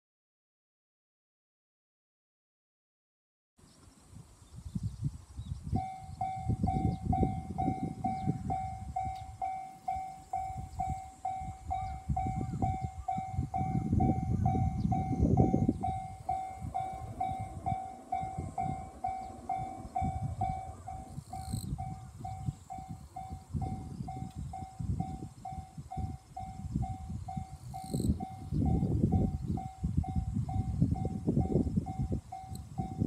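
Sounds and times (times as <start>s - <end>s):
low rumble: 4.8s - 27.5s
level crossing warning bell: 5.8s - 33.0s.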